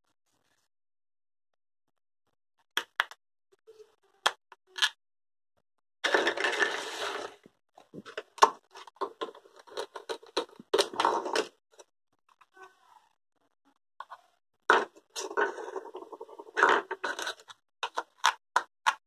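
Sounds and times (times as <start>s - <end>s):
plastic toy pieces clicking: 16.6s - 19.0s.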